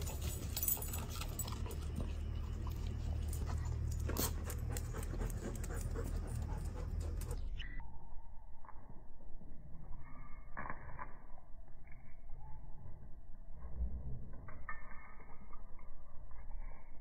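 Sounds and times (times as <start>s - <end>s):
dog panting: 0.0s - 7.6s.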